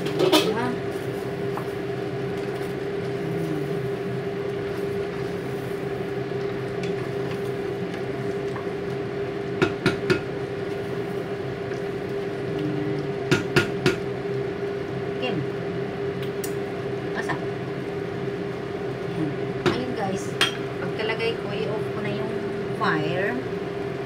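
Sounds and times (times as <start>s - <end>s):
steady hum: 0.0s - 24.0s
spatula knocking on a pot: 9.6s - 10.3s.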